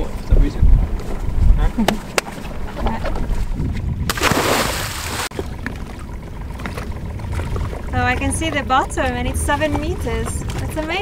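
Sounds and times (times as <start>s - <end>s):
wind rumble on microphone: 0.0s - 11.0s
splash into water: 4.1s - 5.6s.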